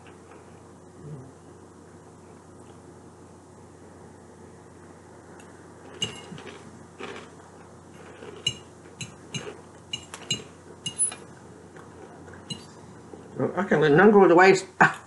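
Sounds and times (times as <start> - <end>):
fork clinking against dish: 8.4 - 11.2.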